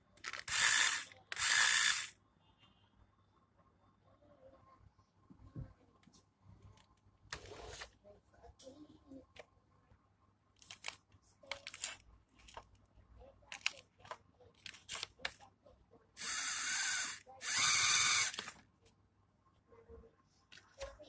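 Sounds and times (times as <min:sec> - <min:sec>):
toy car motor whirring: 0:00.2 - 0:02.1, 0:16.2 - 0:18.6.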